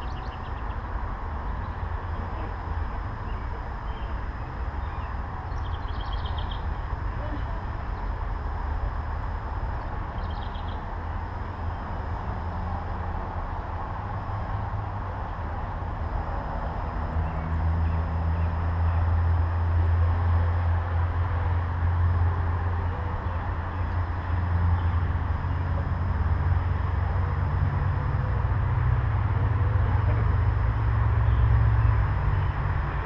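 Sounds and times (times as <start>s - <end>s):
low outdoor rumble: 0.0s - 33.0s
faint bird chirps: 2.8s - 8.1s, 9.7s - 10.8s.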